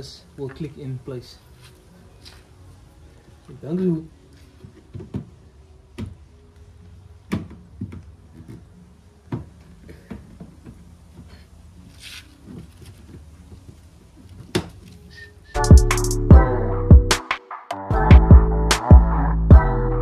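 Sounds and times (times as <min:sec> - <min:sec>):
brief rustle: 0:11.9 - 0:13.2
loud electronic music: 0:15.6 - 0:20.0.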